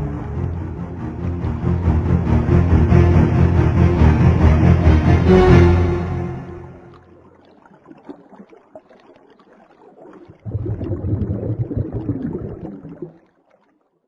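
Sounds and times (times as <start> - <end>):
music: 0.0 - 7.1
low bubbling rush: 6.4 - 13.8.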